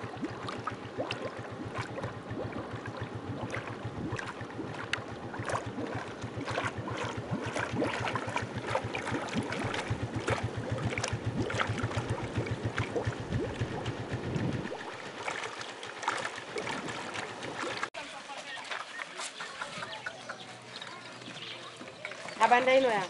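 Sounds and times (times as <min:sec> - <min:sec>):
small engine running: 0:00.0 - 0:17.9.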